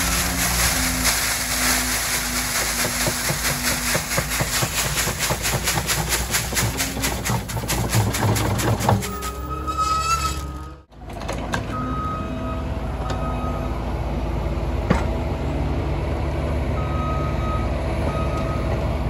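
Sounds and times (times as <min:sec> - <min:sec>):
gravel pouring and clattering: 0:00.0 - 0:10.6
engine running: 0:00.0 - 0:19.0.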